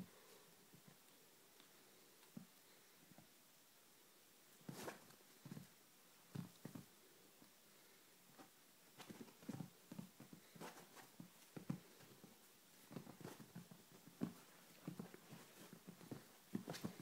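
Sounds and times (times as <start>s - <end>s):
kitten scrabbling on blanket: 4.6s - 5.7s, 8.4s - 17.0s.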